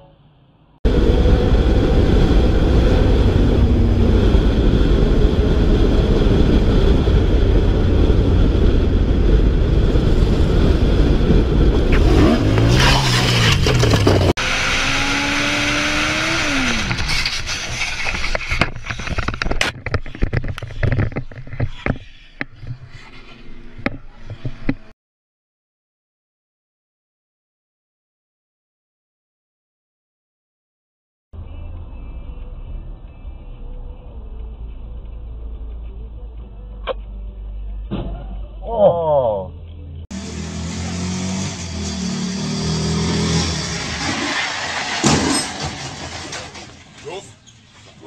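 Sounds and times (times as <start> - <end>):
motorcycle engine and wind noise: 0.9 - 12.7
scrapes and knocks on asphalt: 12.5 - 14.4, 16.8 - 23.2.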